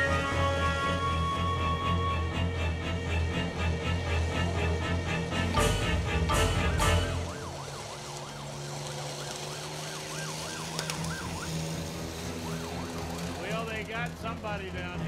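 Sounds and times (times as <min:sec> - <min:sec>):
electronic siren yelping: 0:00.0 - 0:02.6, 0:05.0 - 0:13.2
music: 0:00.0 - 0:07.3.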